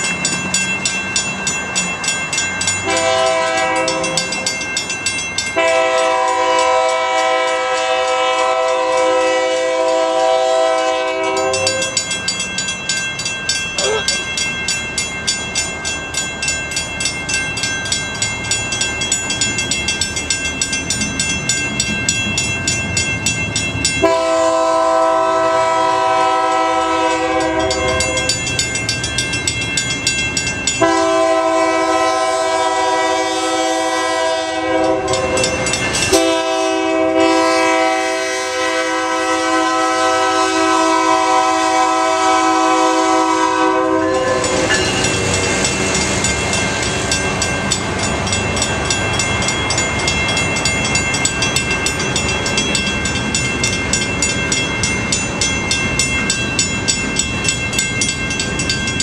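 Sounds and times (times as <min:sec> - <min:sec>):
crossing bells ringing: 0:00.0 - 0:59.0
train rumbling and clacking: 0:00.0 - 0:59.0
locomotive air horn blasts: 0:02.9 - 0:04.3, 0:05.6 - 0:12.0, 0:24.0 - 0:28.3, 0:30.8 - 0:35.5, 0:36.1 - 0:44.8.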